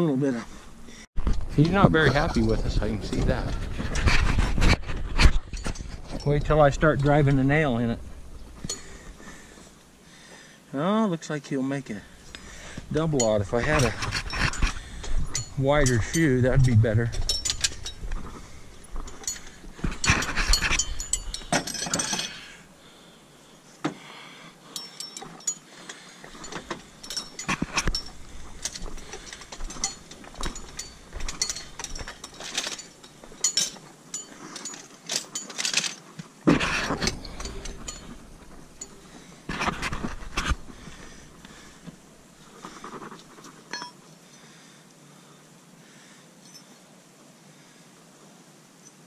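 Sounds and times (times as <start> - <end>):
metal horseshoes clinking: 5.3 - 10.0, 12.0 - 22.7, 24.7 - 44.0, 46.4 - 46.8.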